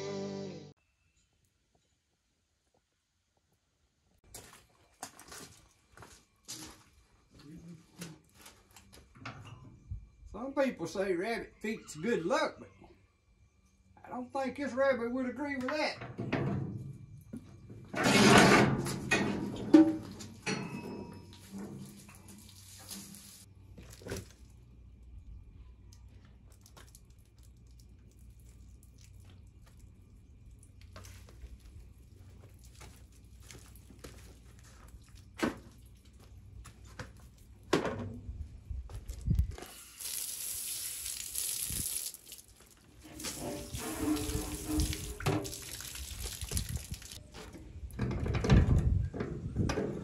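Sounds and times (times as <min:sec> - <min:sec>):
faucet water into metal sink: 0:39.7 - 0:47.2.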